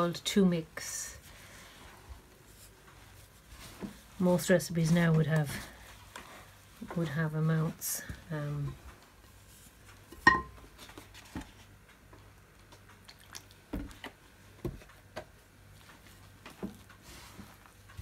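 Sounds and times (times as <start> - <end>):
dough squishing: 0.0 - 10.0.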